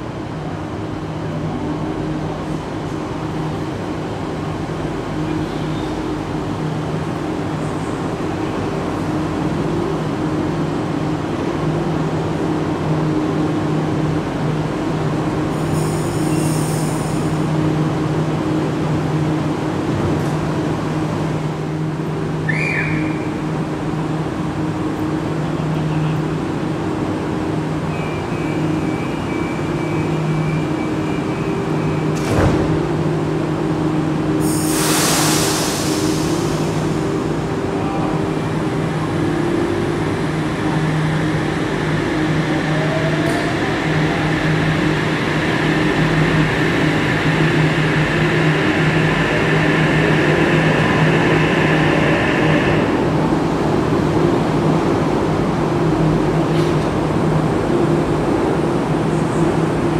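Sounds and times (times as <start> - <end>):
electric train pulling in: 0.0 - 59.9
brief train squeal: 15.7 - 17.2, 22.4 - 23.4, 27.8 - 32.2.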